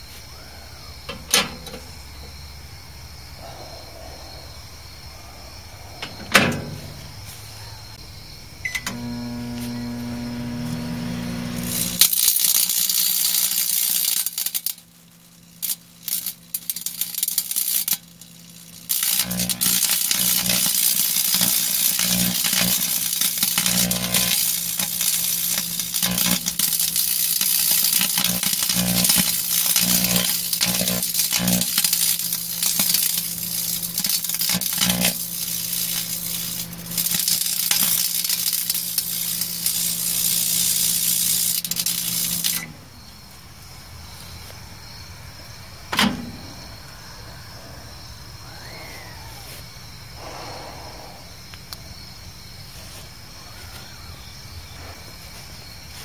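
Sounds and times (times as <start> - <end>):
microwave oven humming: 8.6 - 12.1, 18.0 - 42.8
electrical arcing crackling and sizzling: 8.9 - 42.7.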